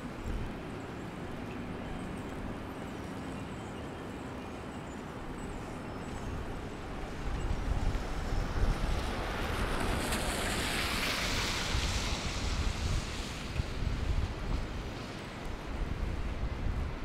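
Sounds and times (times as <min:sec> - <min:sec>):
wind rumble on microphone: 0:00.0 - 0:04.0, 0:04.6 - 0:17.0
tyres hissing on snowy street: 0:05.7 - 0:17.0.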